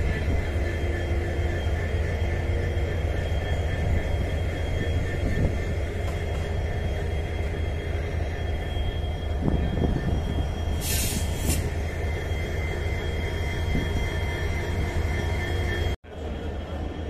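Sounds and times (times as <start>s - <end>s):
diesel locomotive idling: 0.0s - 17.0s
burst of hiss: 10.8s - 11.7s.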